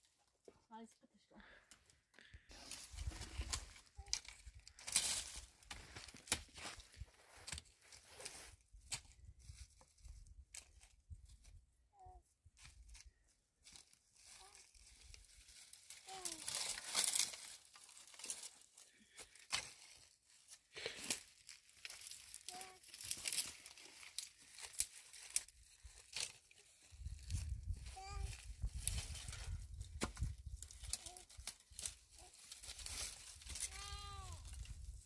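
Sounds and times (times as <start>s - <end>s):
crinkling and tearing: 13.8s - 35.0s.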